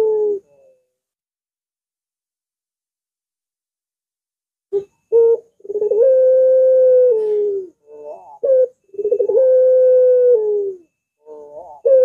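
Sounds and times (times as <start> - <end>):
dove cooing: 0.0 - 0.9, 4.7 - 12.0.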